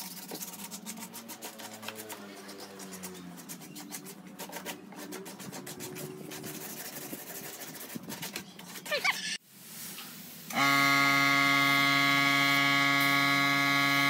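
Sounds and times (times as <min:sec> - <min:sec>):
sandpaper rubbing on wood: 0:00.0 - 0:09.2.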